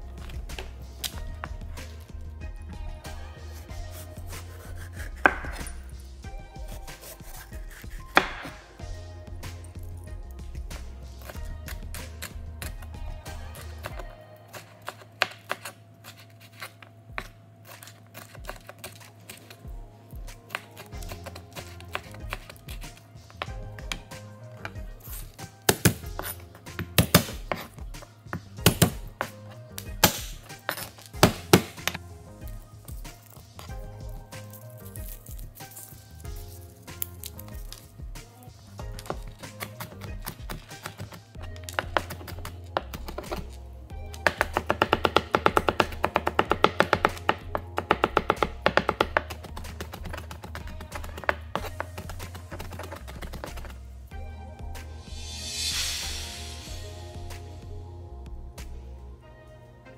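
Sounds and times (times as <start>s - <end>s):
background music: 0.0s - 59.9s
knife chopping on cutting board: 4.4s - 5.8s, 6.7s - 8.6s, 25.2s - 27.7s, 28.7s - 29.3s, 30.0s - 32.0s, 39.0s - 43.5s, 44.1s - 53.8s
hand thwacking knife blade: 30.0s - 32.0s.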